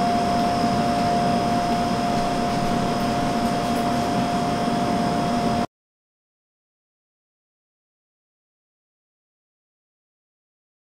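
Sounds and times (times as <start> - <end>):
mechanical hum and hiss: 0.0 - 5.7
mid-pitched whine: 0.0 - 5.7.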